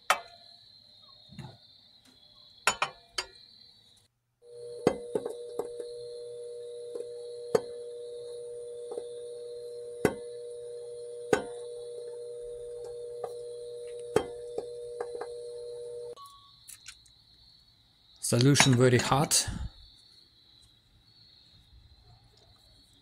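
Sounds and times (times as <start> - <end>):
boiling ticks and pops: 4.0 - 17.2
high-pitched electrical whine: 4.4 - 16.3.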